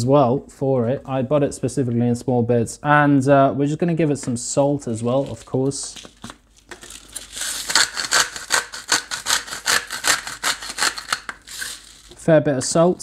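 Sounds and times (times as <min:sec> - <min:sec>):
salt grinder grinding: 0:06.7 - 0:12.2.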